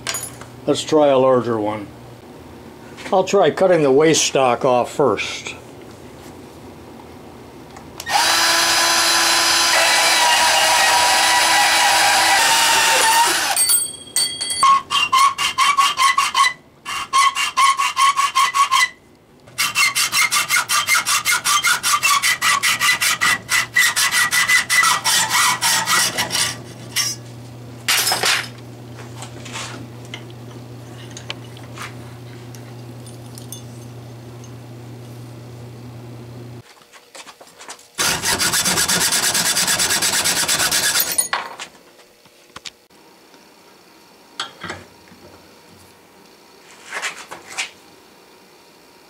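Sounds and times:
power tool running: 8.0s - 13.6s, 38.0s - 41.1s
hacksaw sawing steel wire: 8.1s - 13.6s, 14.7s - 27.2s, 38.0s - 41.2s.

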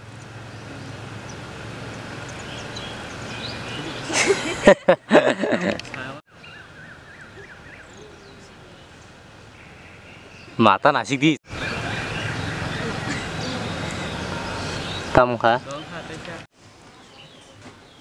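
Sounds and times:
low outdoor background noise: 0.0s - 18.0s
man and woman laughing: 3.8s - 5.9s, 12.8s - 13.7s.

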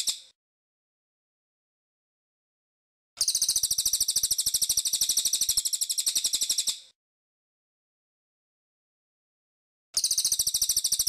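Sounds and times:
songbird high-pitched trill: 3.2s - 6.9s, 10.0s - 11.0s.

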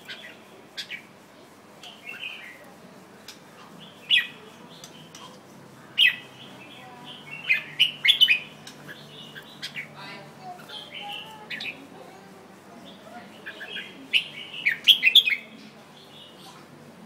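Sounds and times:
bird singing chirpy phrases: 1.8s - 2.6s, 3.6s - 5.4s, 6.0s - 11.9s, 12.8s - 16.7s.

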